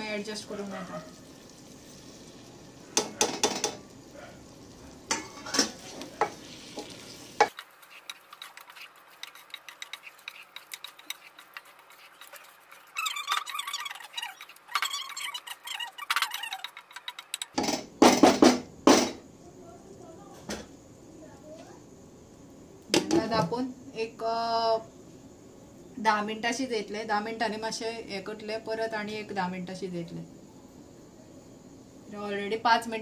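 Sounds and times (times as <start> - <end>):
food sizzling: 0.0 - 17.6
wooden spoon scraping a pot: 5.1 - 17.6.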